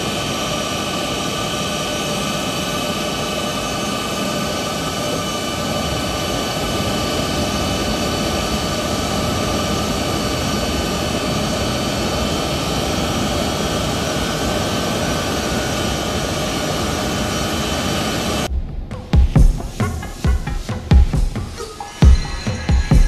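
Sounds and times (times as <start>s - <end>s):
high whine tones: 0.0s - 23.0s
jet engines roaring: 0.0s - 23.0s.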